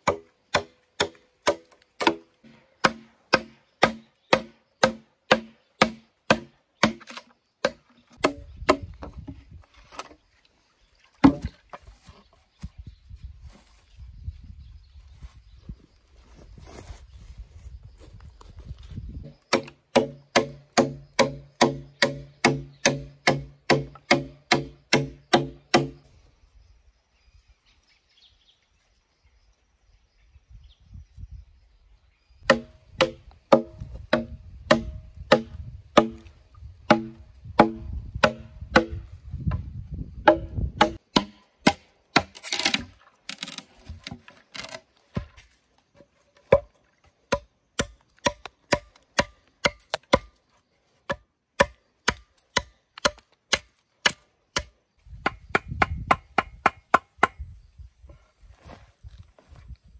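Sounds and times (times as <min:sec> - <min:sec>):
blade chopping bamboo: 0:00.0 - 0:09.0, 0:11.2 - 0:11.5, 0:19.5 - 0:26.0, 0:32.5 - 0:36.3, 0:36.9 - 0:39.0, 0:40.2 - 0:45.4, 0:46.4 - 0:50.4, 0:51.0 - 0:57.4.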